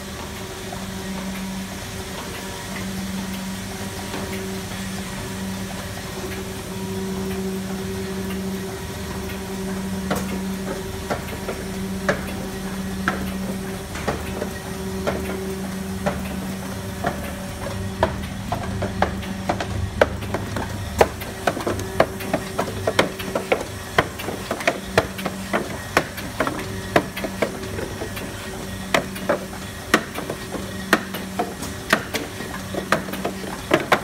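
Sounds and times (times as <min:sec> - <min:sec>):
machine hum: 0:00.0 - 0:34.0.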